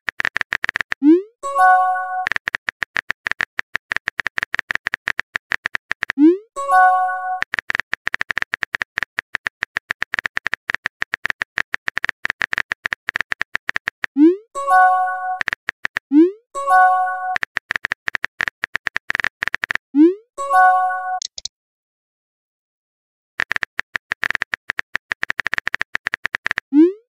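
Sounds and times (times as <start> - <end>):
phone keyboard typing taps: 0.1 - 1.0, 2.2 - 6.2, 7.3 - 14.2, 15.3 - 16.1, 17.3 - 19.9, 21.2 - 21.5, 23.4 - 26.7.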